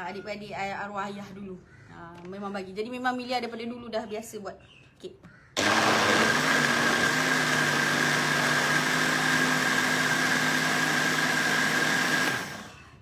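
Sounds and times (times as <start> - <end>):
blender motor whirring: 5.6 - 13.0.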